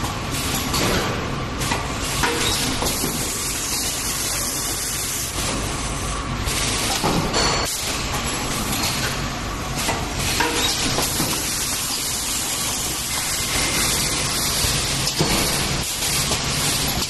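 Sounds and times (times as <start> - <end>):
machine hissing: 1.9 - 8.8, 9.7 - 17.0.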